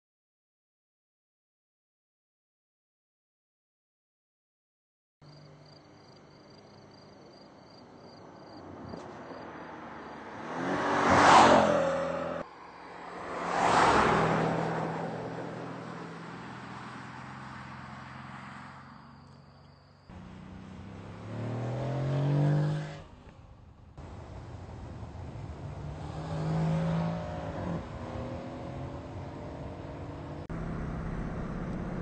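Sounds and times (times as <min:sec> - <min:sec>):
car engine passing at speed: 0:08.5 - 0:19.2, 0:20.1 - 0:32.0
car engine accelerating hard: 0:08.9 - 0:12.4, 0:20.1 - 0:32.0.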